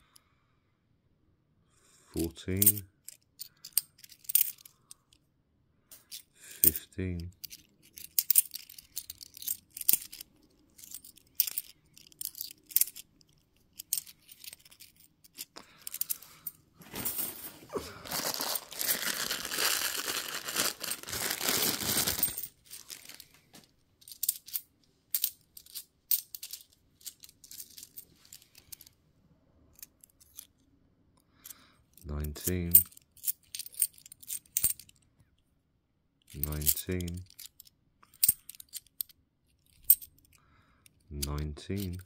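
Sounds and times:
coins clinking: 2.6 - 4.7, 6.1 - 17.5, 18.1 - 23.3, 24.0 - 28.9, 32.4 - 34.9, 36.3 - 39.1, 39.7 - 40.1
rattling and rustling: 7.4 - 24.6.

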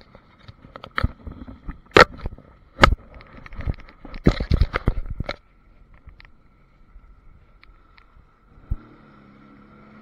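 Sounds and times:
camera knocking and scraping: 0.0 - 6.4
faint steady whine: 0.0 - 10.0.

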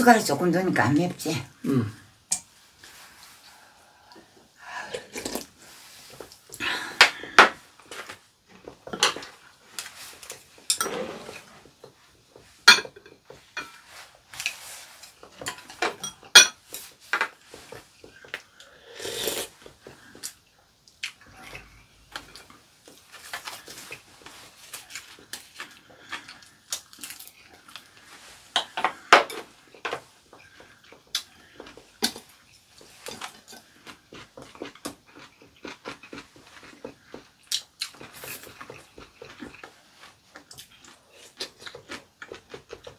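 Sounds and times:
utensils clinking on ceramic bowls: 12.7 - 13.8, 15.4 - 16.6.

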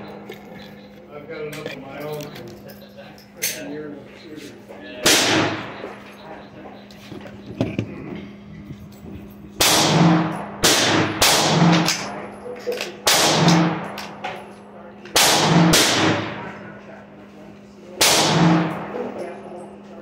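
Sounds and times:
echoing gunshots: 5.0 - 6.0, 9.6 - 12.2, 13.0 - 14.2, 15.1 - 16.8, 18.0 - 19.1.

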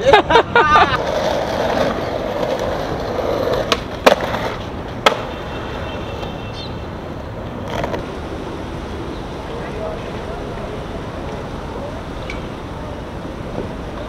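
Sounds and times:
skateboard wheels rolling on concrete: 0.0 - 14.0
skateboard clacking on ground: 1.0 - 6.4, 7.4 - 8.0.

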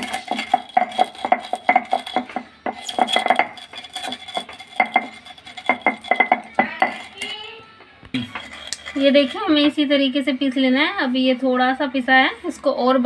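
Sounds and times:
rolling pin crushing spices: 0.0 - 7.3.

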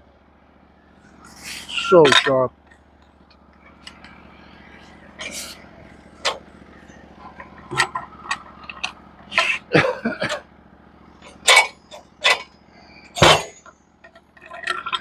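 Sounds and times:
log thumping onto metal bed: 13.2 - 13.6.

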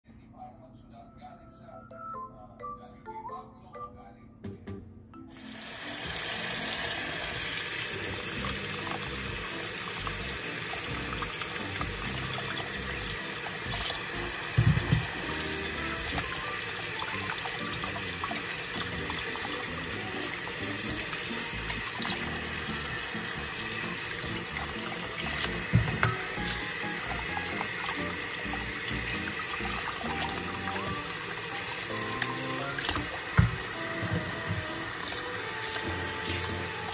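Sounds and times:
tap water running into a pot: 5.3 - 36.9.

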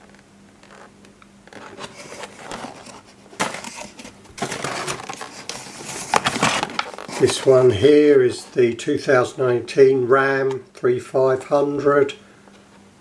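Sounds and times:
plastic packaging crackling and scraping: 0.0 - 8.7
cardboard box crackling: 1.5 - 7.9.

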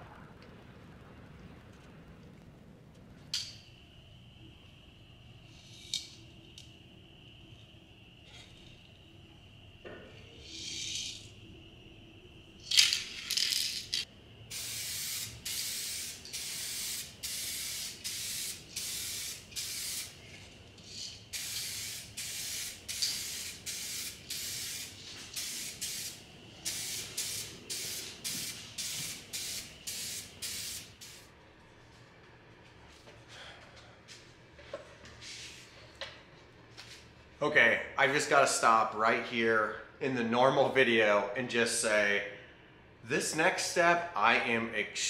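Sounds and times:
aerosol can spraying: 14.5 - 20.2, 21.3 - 31.3.

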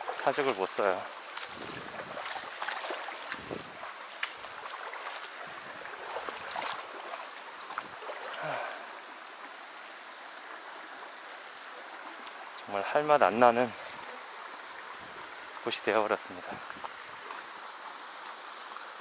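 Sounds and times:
footsteps on a bank: 0.0 - 8.8
stream running over rocks: 0.0 - 19.0.

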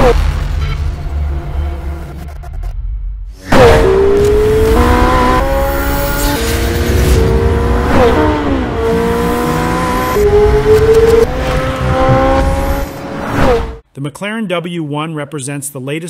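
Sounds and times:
car engine revving through gears: 3.4 - 13.8.

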